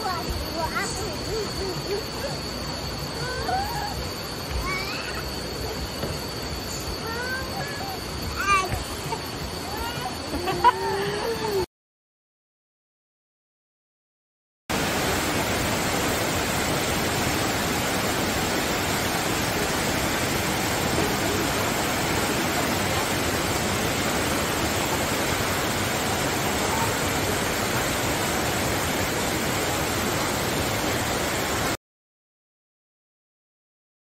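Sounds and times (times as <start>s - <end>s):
rain and running water: 14.7s - 31.8s.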